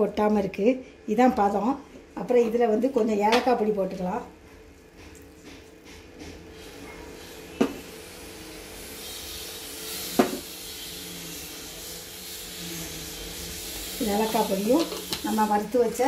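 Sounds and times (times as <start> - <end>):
food sizzling in a pan: 6.5 - 16.0.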